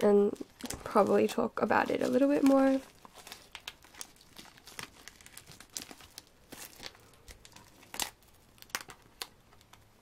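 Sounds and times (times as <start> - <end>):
plastic shrink wrap crinkling: 0.0 - 10.0.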